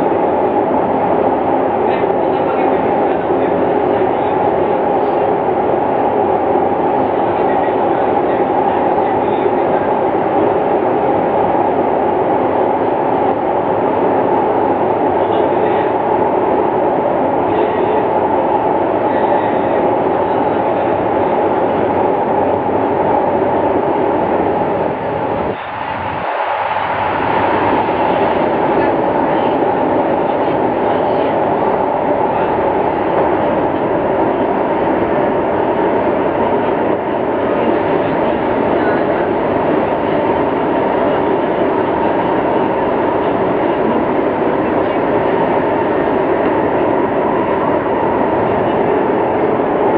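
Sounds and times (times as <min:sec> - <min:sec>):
train wheels rumbling on rails: 0:00.0 - 0:49.9.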